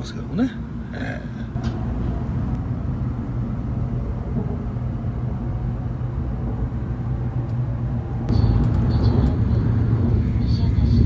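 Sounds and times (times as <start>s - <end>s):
train cabin rumble: 0.0s - 11.0s.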